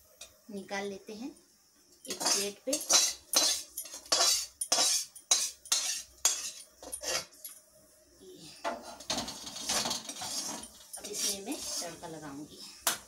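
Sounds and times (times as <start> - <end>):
metal ladle scraping steel pan: 2.1 - 7.3, 8.8 - 12.0.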